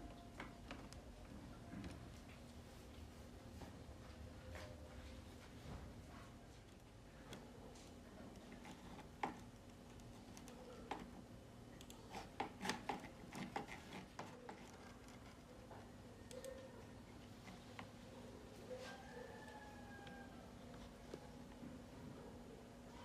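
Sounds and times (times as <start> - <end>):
faint steady hum: 0.0 - 23.0
computer mouse clicks: 11.8 - 15.2.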